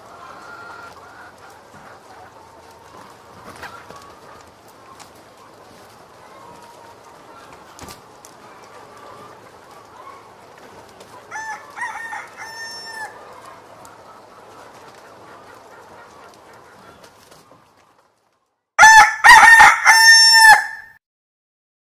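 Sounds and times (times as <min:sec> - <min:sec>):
rooster crowing: 0:11.3 - 0:13.2, 0:18.8 - 0:21.0.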